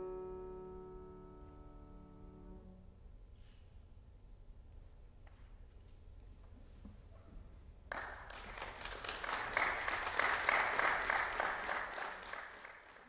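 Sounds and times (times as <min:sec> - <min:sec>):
audience applauding: 0:07.9 - 0:13.0.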